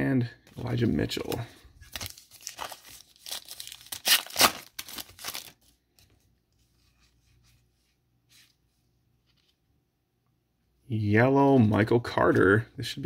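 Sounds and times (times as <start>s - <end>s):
cards rustling: 0.5s - 6.7s
foil wrapper tearing and crinkling: 1.9s - 5.6s.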